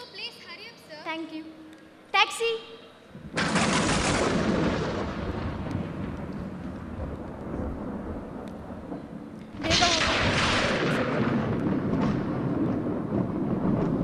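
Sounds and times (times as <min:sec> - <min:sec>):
thunder crash and rumble: 0:03.2 - 0:14.0.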